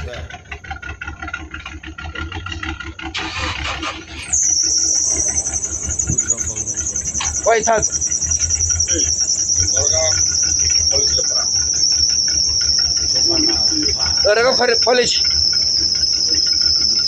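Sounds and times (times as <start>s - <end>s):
insects shrilling: 3.2s - 17.0s
faint voices: 4.7s - 17.0s.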